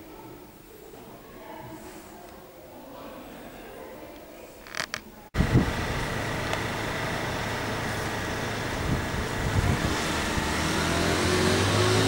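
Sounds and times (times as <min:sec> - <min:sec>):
road traffic rumble: 0:04.8 - 0:12.0
vehicle engine note rising: 0:05.4 - 0:12.0.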